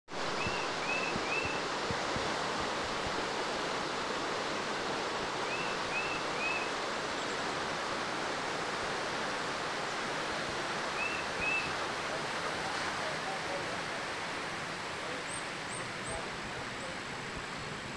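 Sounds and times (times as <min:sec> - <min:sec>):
floodwater rushing: 0:00.1 - 0:17.9
bird chirping: 0:00.4 - 0:01.6, 0:05.5 - 0:07.3, 0:11.0 - 0:11.7.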